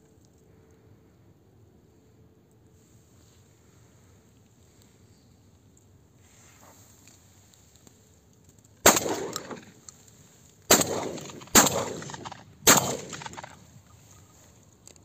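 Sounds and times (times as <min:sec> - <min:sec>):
shotgun shots echoing: 0:08.8 - 0:09.8, 0:10.7 - 0:13.8.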